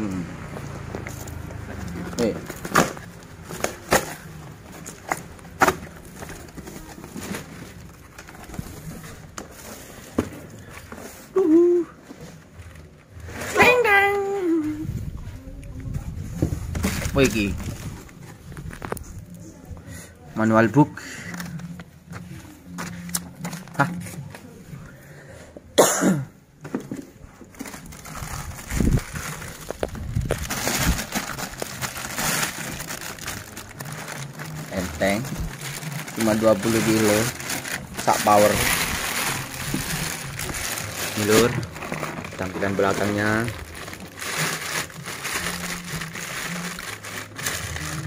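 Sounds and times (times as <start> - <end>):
rustling and handling noises: 0.5 - 19.9, 20.5 - 24.9, 26.6 - 48.0
man coughing: 25.8 - 26.4
packaging knocks and scrapes: 26.7 - 48.0.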